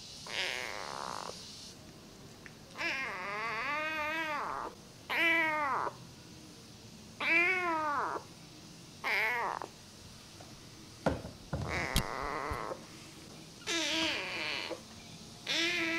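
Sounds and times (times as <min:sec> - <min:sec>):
kitten meowing: 0:00.3 - 0:01.3, 0:02.8 - 0:06.0, 0:07.2 - 0:08.2, 0:09.0 - 0:09.7, 0:11.7 - 0:12.8, 0:13.7 - 0:14.8, 0:15.4 - 0:15.9.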